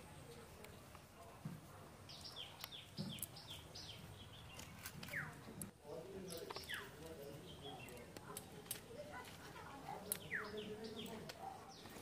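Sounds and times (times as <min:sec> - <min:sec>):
birds chirping and whistling: 0:02.1 - 0:05.5, 0:06.2 - 0:08.1, 0:10.0 - 0:12.0.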